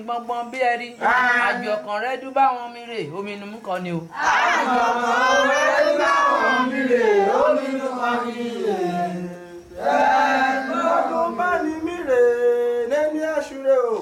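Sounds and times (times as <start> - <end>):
voices chanting: 0.0 - 2.3, 4.1 - 13.0.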